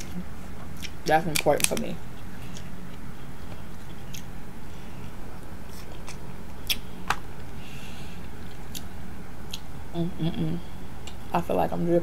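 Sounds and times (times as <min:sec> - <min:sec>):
steady low hum: 0:00.0 - 0:12.0
crab shells snapping: 0:00.8 - 0:01.9.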